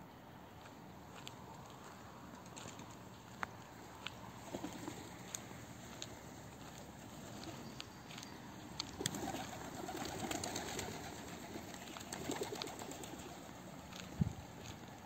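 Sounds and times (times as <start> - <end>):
pigeons cooing: 4.4 - 5.4, 9.0 - 13.6.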